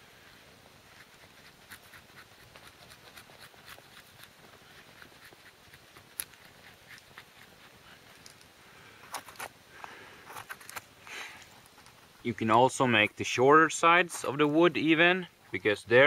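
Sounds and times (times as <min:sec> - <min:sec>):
knife scraping wood: 0:00.9 - 0:08.4.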